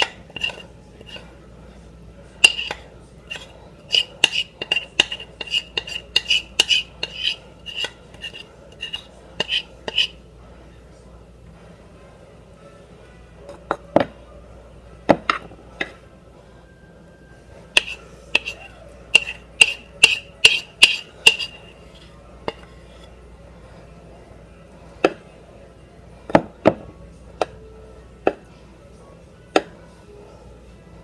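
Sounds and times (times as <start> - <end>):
metal spoon clinking on ceramic bowl: 17.8 - 21.6.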